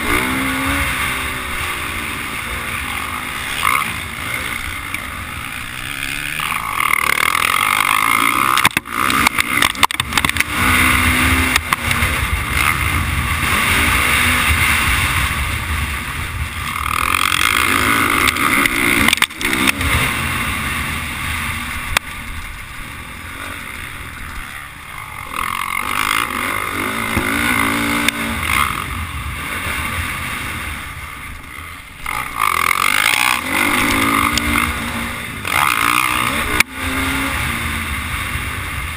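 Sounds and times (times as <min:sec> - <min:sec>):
motocross bike engine revving: 0:00.0 - 0:38.9
sharp knocks from rough track: 0:06.4 - 0:12.8, 0:17.0 - 0:20.1, 0:27.0 - 0:28.7.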